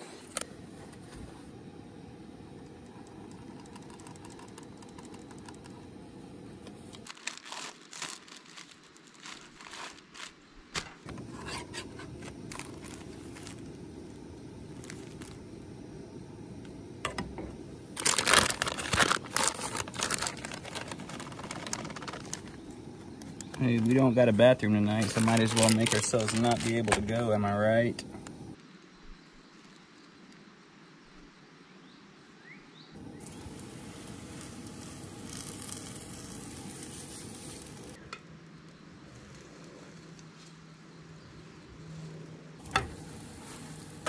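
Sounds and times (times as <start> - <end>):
steady background hiss: 0.0 - 44.0
plastic packaging crinkling: 7.0 - 11.2, 12.1 - 13.8, 14.8 - 15.4, 18.0 - 24.1, 24.9 - 27.3, 33.2 - 38.0.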